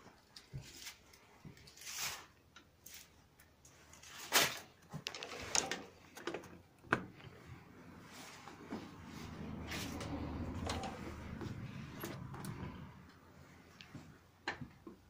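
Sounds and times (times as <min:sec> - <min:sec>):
clicks and knocks of controls: 0:09.7 - 0:13.2.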